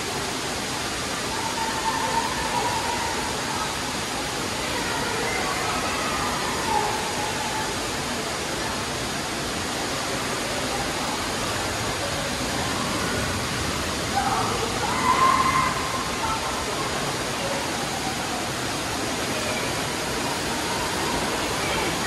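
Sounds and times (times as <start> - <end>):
faint children's voices: 0.0 - 22.0
running water rushing: 0.0 - 22.0.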